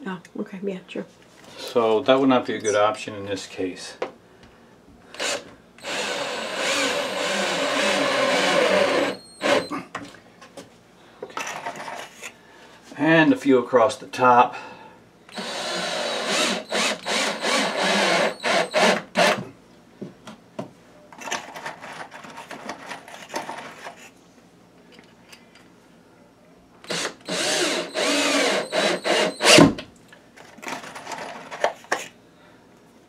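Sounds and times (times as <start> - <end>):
cordless drill driving screws: 5.2 - 9.7, 15.3 - 19.4, 26.9 - 29.8.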